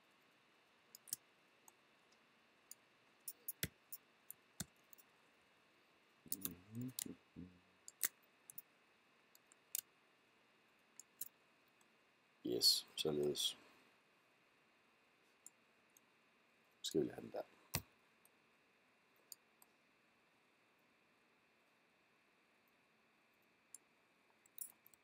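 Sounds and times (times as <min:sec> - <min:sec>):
computer mouse clicks: 0:00.9 - 0:01.8, 0:07.9 - 0:08.7
person humming: 0:06.3 - 0:07.6.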